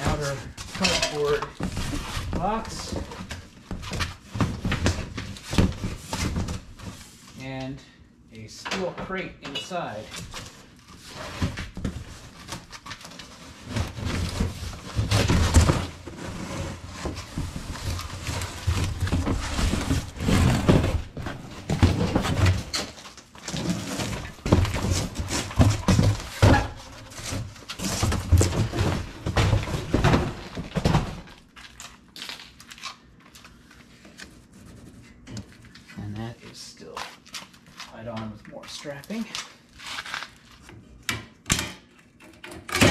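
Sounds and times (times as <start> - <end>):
cardboard scraping and rustling: 10.2 - 31.8.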